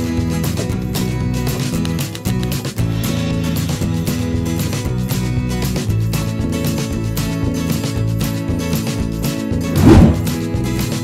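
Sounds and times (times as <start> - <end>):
background music: 0.0 - 11.0.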